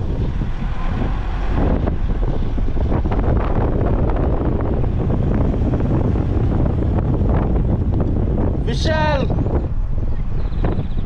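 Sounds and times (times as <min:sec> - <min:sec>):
road rumble: 0:00.0 - 0:11.0
wind noise on microphone: 0:00.0 - 0:11.0.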